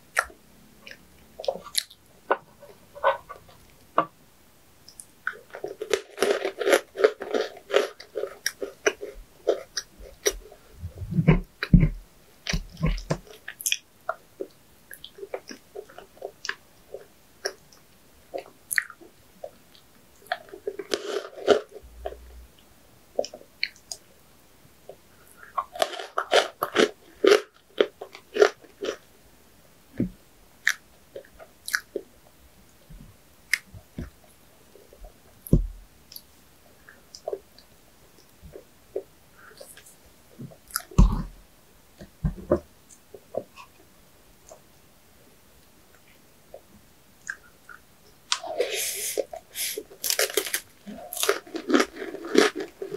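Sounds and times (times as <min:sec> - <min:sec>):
person chewing crunchy sweets: 0:00.1 - 0:03.6, 0:04.9 - 0:11.8, 0:18.3 - 0:22.3, 0:24.9 - 0:29.1, 0:30.6 - 0:32.1, 0:38.2 - 0:41.4, 0:47.2 - 0:52.9.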